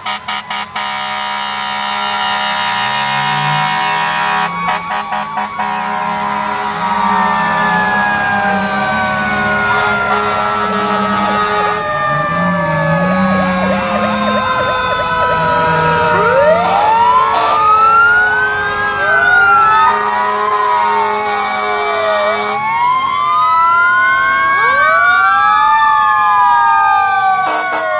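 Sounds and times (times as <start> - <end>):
fire truck sirens wailing: 0.0 - 27.9
siren sweeping up and down: 0.0 - 27.9.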